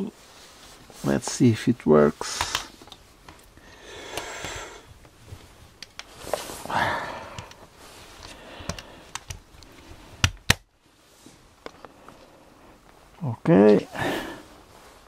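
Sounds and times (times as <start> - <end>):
rustling: 0.0 - 3.6, 4.2 - 6.8, 7.5 - 13.1, 14.4 - 15.0
sharp clicks: 8.2 - 10.6.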